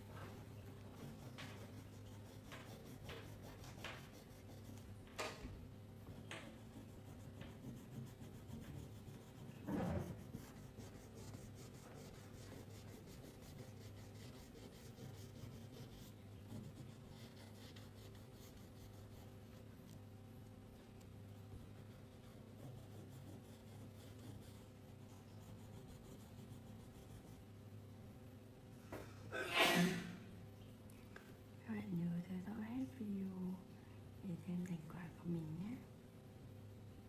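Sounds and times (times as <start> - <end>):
steady low hum: 0.0 - 29.5
crayon scratching on paper: 0.3 - 4.8, 6.3 - 19.7, 21.8 - 27.4.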